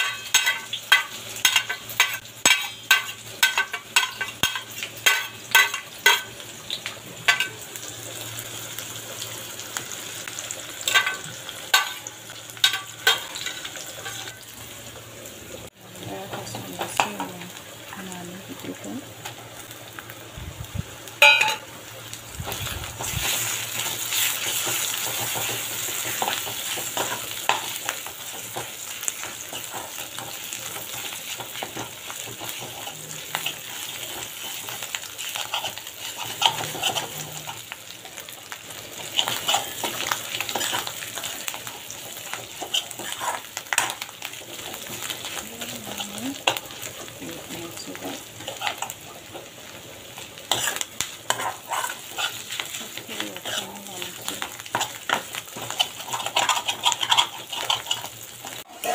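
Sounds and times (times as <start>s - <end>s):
spoon scraping a pan: 0.0s - 6.4s, 10.8s - 14.5s, 21.2s - 21.6s, 23.0s - 37.7s, 39.0s - 47.1s, 48.0s - 49.5s, 50.4s - 58.9s
fish sizzling in hot oil: 0.0s - 58.9s.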